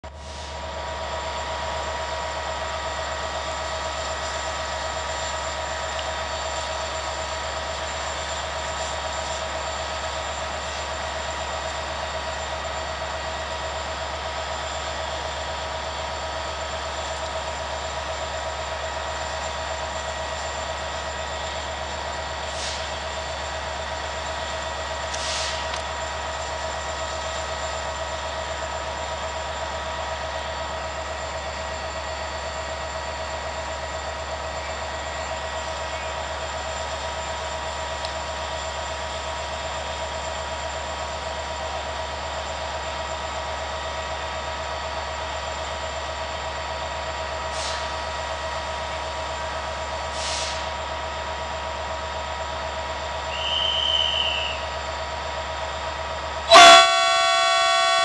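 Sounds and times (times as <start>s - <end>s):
locomotive engine idling: 0.1s - 58.0s
short hisses: 25.2s - 25.7s
constant whine: 56.5s - 58.0s.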